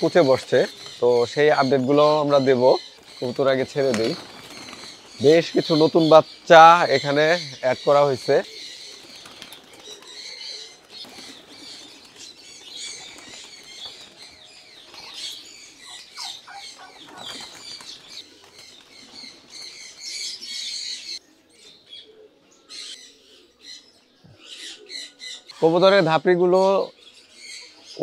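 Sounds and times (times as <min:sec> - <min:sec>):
small birds chirping: 0:00.0 - 0:28.0
pigeon wings flapping: 0:03.0 - 0:05.5, 0:08.9 - 0:10.2, 0:10.8 - 0:15.3, 0:16.8 - 0:19.7.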